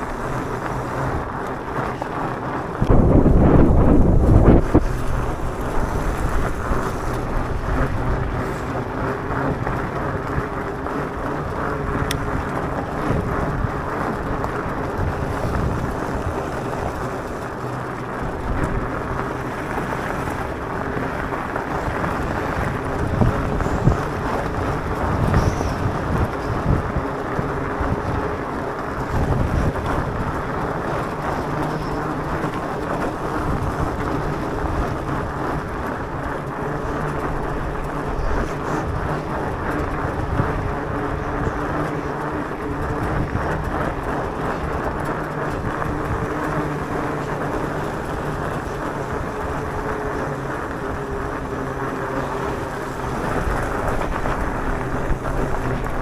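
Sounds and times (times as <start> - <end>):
tyres rumbling on gravel: 0.0 - 56.0
wind buffeting microphone: 0.0 - 56.0.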